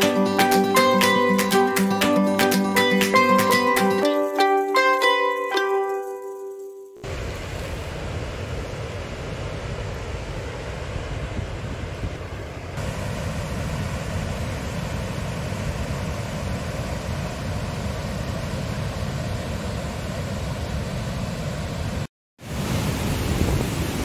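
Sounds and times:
water rushing over weir: 0:07.0 - 0:24.0.

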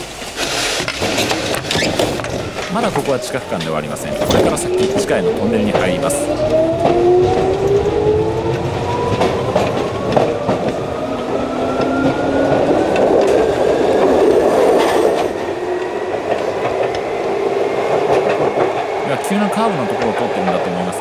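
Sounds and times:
rail clicks: 0:00.0 - 0:21.0
train running roar: 0:00.0 - 0:21.0
electric motor whine rising: 0:02.5 - 0:17.4.

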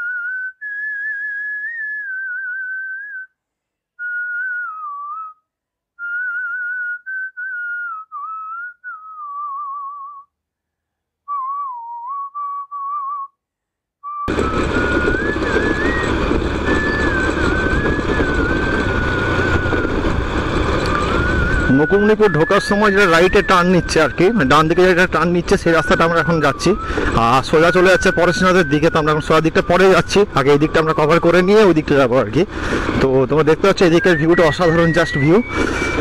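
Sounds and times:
person whistling a tune: 0:00.0 - 0:03.4, 0:04.0 - 0:10.3, 0:11.2 - 0:13.4, 0:14.0 - 0:19.9, 0:20.9 - 0:31.7, 0:33.7 - 0:36.0
wind and road noise: 0:14.3 - 0:36.0.

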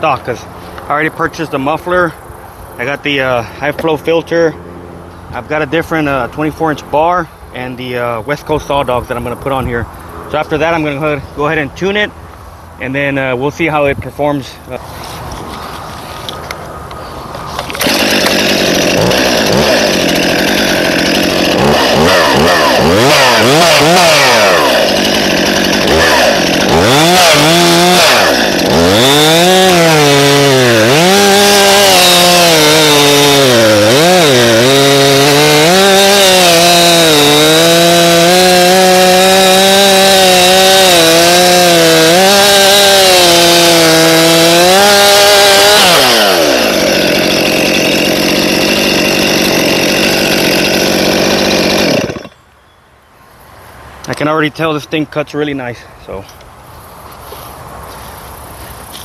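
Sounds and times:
chainsaw cutting wood: 0:14.9 - 0:52.4.

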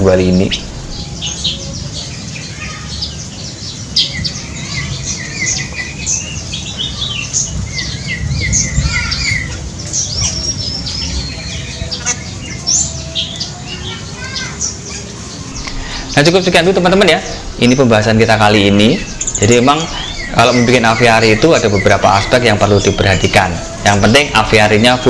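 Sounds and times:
steady low rumble: 0:00.0 - 0:02.3, 0:15.3 - 0:24.8
birds chirping and squawking: 0:00.0 - 0:25.0.

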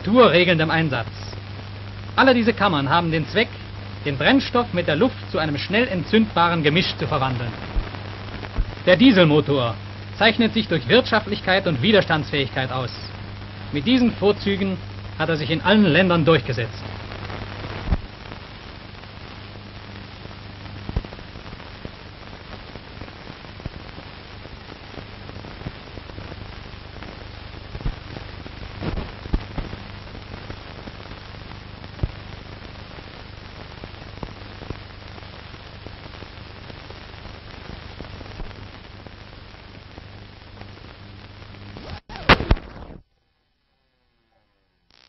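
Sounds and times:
steady hiss: 0:00.0 - 0:43.0
low mains hum: 0:00.0 - 0:45.0
clicks and crackles: 0:07.4 - 0:08.9, 0:16.8 - 0:43.0
loud pops: 0:07.5 - 0:08.8, 0:16.8 - 0:18.4, 0:20.8 - 0:22.0, 0:27.0 - 0:31.2, 0:41.7 - 0:43.0.

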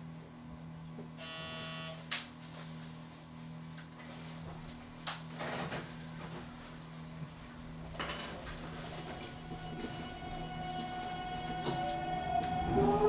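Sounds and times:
electrical hum aboard train: 0:00.0 - 0:13.0
short buzzing tone: 0:01.2 - 0:02.1.

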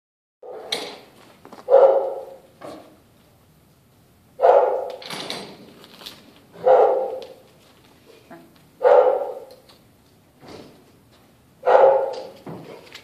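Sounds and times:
large dog barking: 0:01.6 - 0:02.5, 0:04.4 - 0:05.0, 0:06.6 - 0:07.4, 0:08.8 - 0:09.6, 0:11.6 - 0:12.4.

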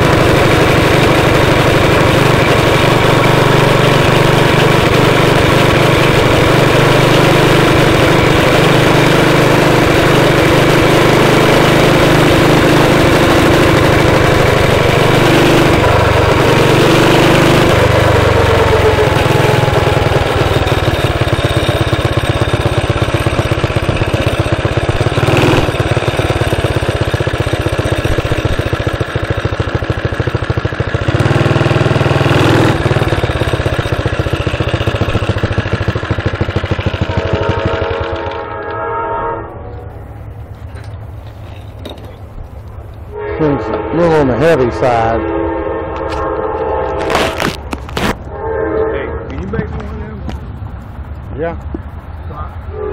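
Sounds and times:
small gasoline engine running: 0:00.0 - 0:38.5, 0:47.0 - 0:48.2.

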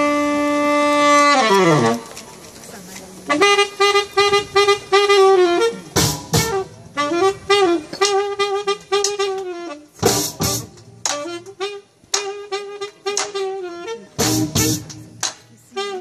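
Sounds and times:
saxophone riff: 0:00.0 - 0:02.1, 0:03.3 - 0:16.0
barrel drums: 0:03.4 - 0:13.5, 0:14.2 - 0:15.3
drum kit: 0:06.0 - 0:06.7, 0:10.0 - 0:11.5, 0:14.2 - 0:15.3.

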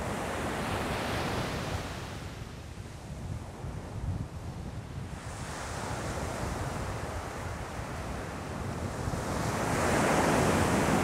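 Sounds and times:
ocean waves breaking: 0:05.2 - 0:11.0.

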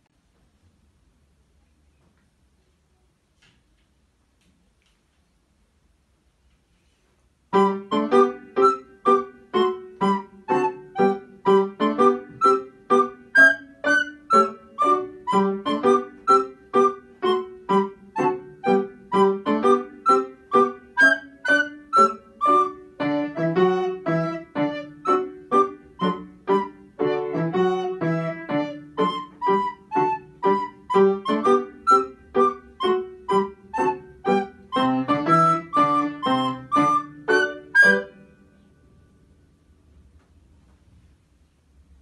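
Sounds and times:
recorder melody: 0:07.5 - 0:38.7
piano playing repeated chords: 0:07.5 - 0:39.4.

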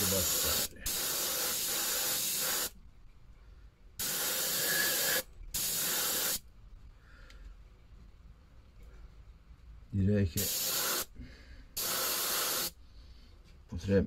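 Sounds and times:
airbrush hissing: 0:00.0 - 0:02.8, 0:04.0 - 0:06.4, 0:10.4 - 0:11.1, 0:11.8 - 0:12.8.

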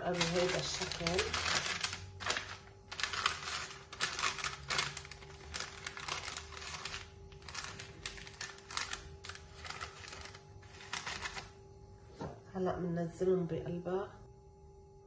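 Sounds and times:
baking paper crinkling: 0:00.0 - 0:11.6.

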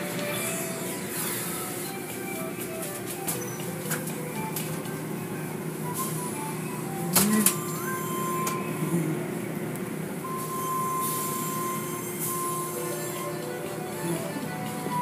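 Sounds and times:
steady high tone: 0:00.0 - 0:15.0.

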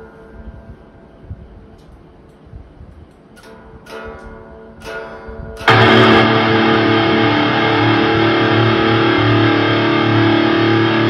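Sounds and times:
distorted electric guitar chord: 0:05.7 - 0:11.0.

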